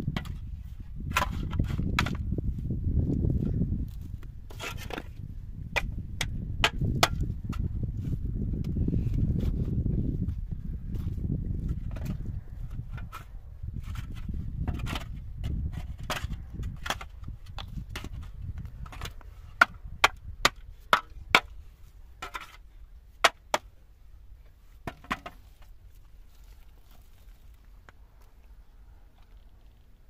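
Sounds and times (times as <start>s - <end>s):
shovel scraping through dirt: 4.5s - 5.2s
shovel knocking on stony ground: 5.8s - 7.7s.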